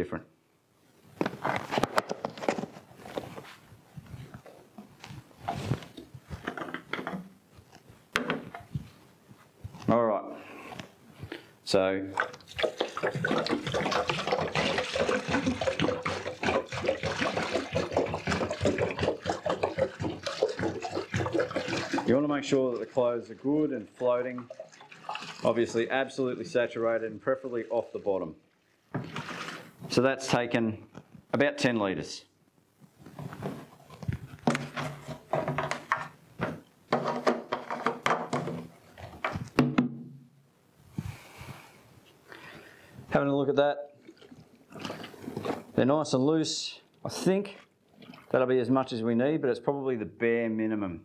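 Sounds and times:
water pouring into plastic tub: 12.1s - 29.8s, 43.9s - 45.8s, 47.5s - 48.5s
water splashing onto clothes: 12.2s - 26.0s, 47.9s - 48.4s
plastic jerry can clunking: 34.4s - 40.1s.

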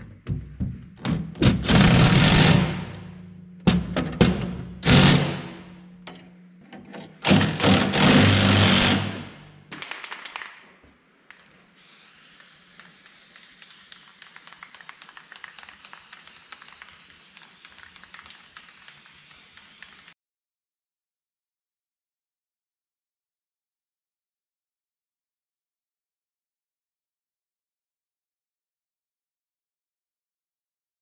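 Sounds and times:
impact driver hammering bolt: 3.7s - 5.5s, 6.8s - 9.2s
aerosol can spraying: 11.3s - 20.2s.

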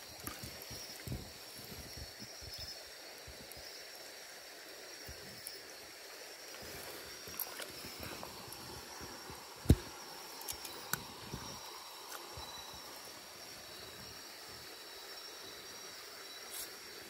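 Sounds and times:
river water running: 0.0s - 17.0s
small splashes and clicks: 0.2s - 1.2s.

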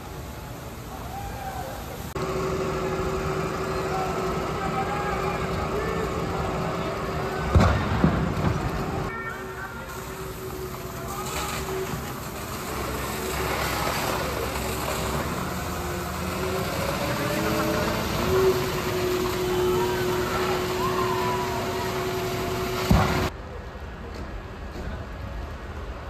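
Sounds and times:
water jets hissing: 0.0s - 7.5s, 8.3s - 23.3s
street noise: 0.0s - 26.0s
tractor engine and pump running: 0.0s - 26.0s
sharp bang: 22.8s - 23.3s.

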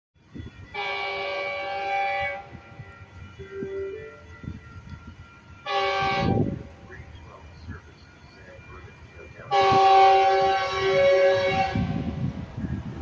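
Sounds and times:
train air horn blast: 0.6s - 4.6s, 5.6s - 6.9s, 9.5s - 12.3s.

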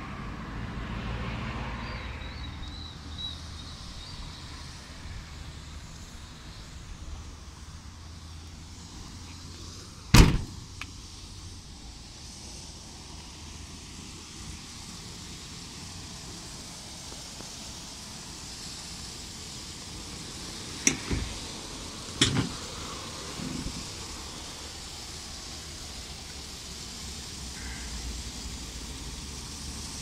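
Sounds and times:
tailgate slamming shut: 10.1s - 10.8s, 20.8s - 21.5s, 22.2s - 22.7s, 23.4s - 23.9s.

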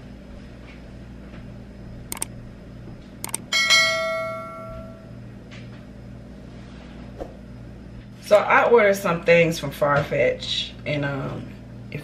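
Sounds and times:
short clicks: 2.1s - 2.3s, 3.2s - 3.4s.

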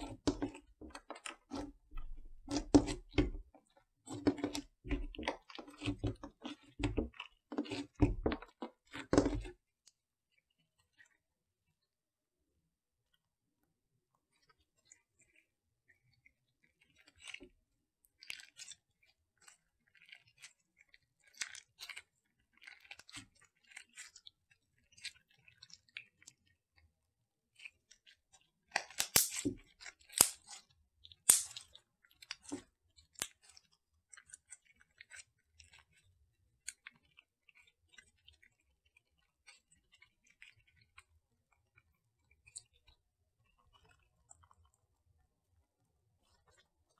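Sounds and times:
slime squelching and clicking: 0.0s - 9.6s, 28.8s - 36.0s
slime popping: 28.9s - 29.5s, 31.3s - 31.6s.

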